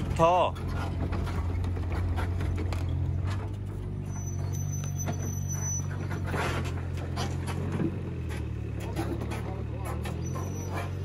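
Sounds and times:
diesel engine humming: 0.0s - 11.0s
high squeal: 4.0s - 6.5s, 10.1s - 11.0s.

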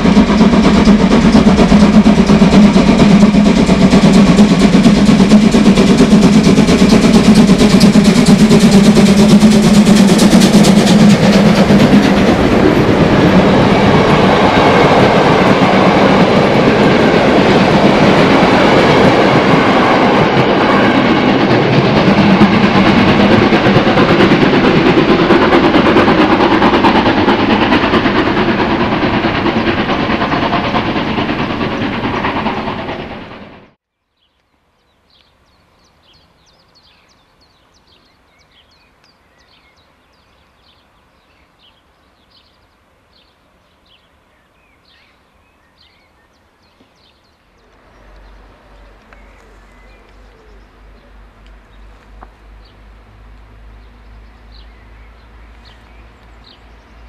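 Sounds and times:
steam locomotive passing: 0.0s - 33.8s, 36.0s - 57.0s
train coaches rolling past: 0.0s - 33.8s, 46.9s - 57.0s.

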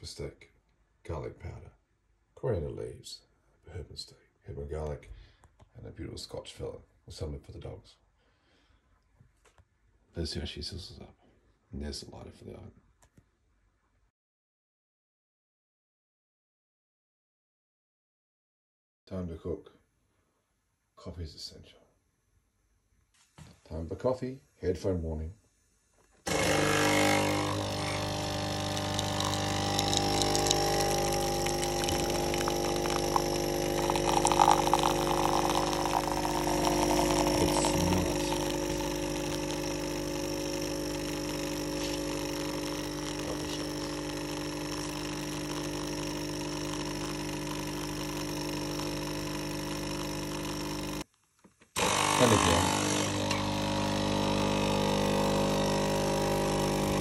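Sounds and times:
coffee pouring into mug: 26.3s - 51.0s, 51.8s - 57.0s
coffee machine pump buzzing: 26.3s - 51.1s, 51.8s - 57.0s.

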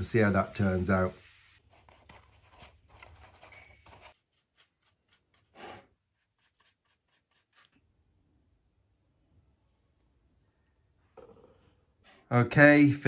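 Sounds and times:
paintbrush scraping filler paste: 1.6s - 7.8s.

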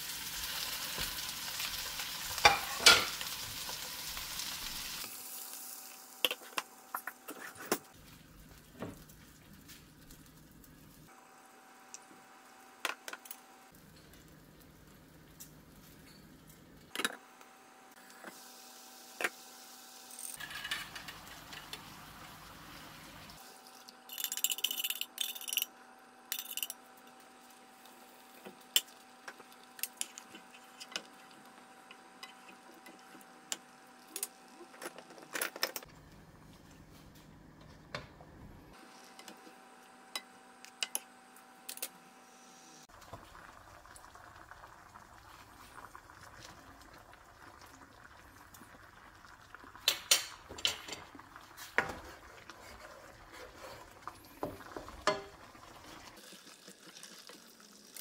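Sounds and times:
utensils tapping a pan: 2.4s - 3.2s, 54.8s - 55.4s.

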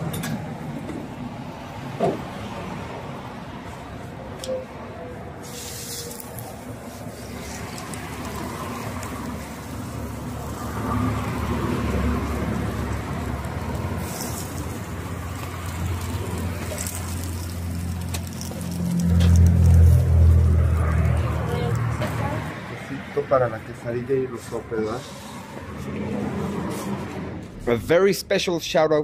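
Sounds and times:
passing traffic engine rumble: 0.0s - 29.0s
food sizzling on griddle: 5.4s - 22.5s.

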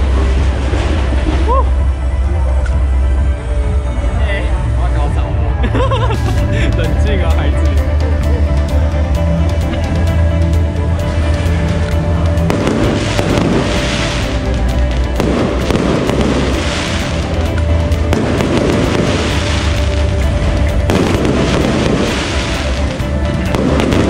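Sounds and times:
music with heavy bass: 0.0s - 24.0s
fireworks bursting and crackling: 12.3s - 24.0s.

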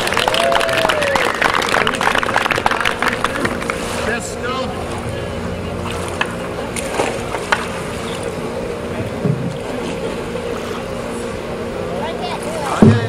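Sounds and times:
steady low hum: 0.0s - 13.0s
water noise: 0.0s - 13.0s
water splashes: 0.0s - 13.0s
paddle knocks: 12.7s - 13.0s.

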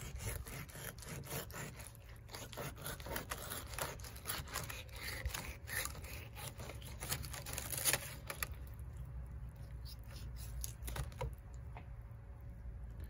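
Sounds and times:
knife scraping and slicing fish: 0.0s - 8.6s, 9.6s - 11.3s.

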